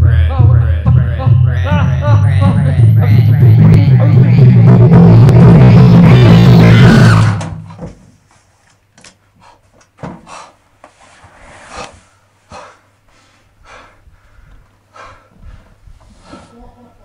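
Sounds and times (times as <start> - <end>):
music: 0.0 - 7.6
man breathing heavily: 9.3 - 16.8.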